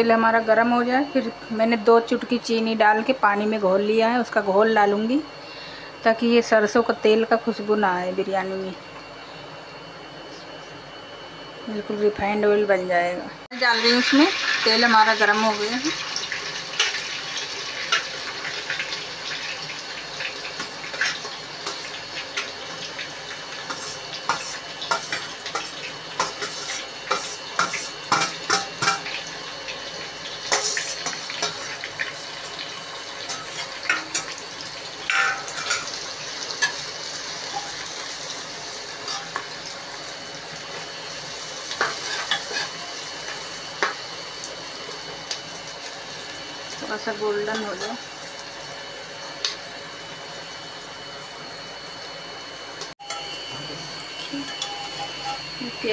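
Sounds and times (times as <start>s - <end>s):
onions sizzling in hot oil: 13.5s - 55.9s.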